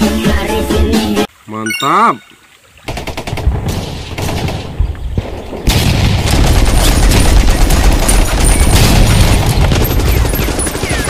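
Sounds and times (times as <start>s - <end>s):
machine-gun fire: 5.6s - 11.0s.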